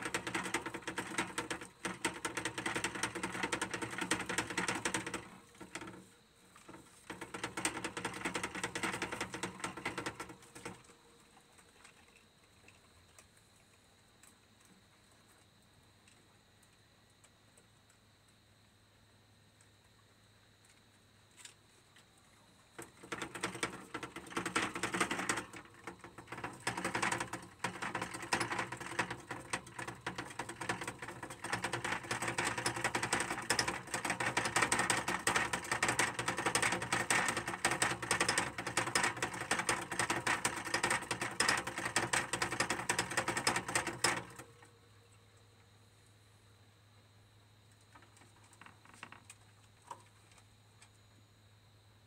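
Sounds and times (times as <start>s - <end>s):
hamster wheel rattling: 0.0s - 11.0s, 22.8s - 44.7s, 47.9s - 49.3s.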